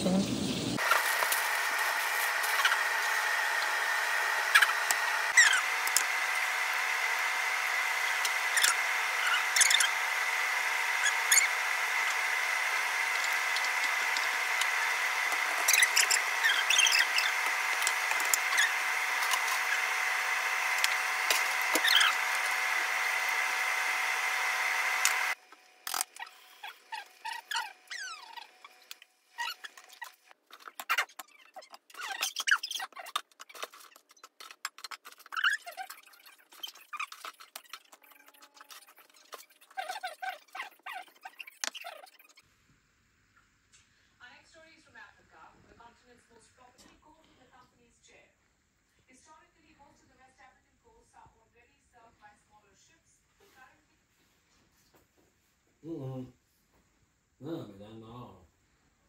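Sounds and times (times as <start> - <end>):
small squeaks: 4.5 - 5.7, 8.2 - 10.0, 10.9 - 12.2, 13.1 - 20.0, 21.4 - 22.5, 25.9 - 42.5.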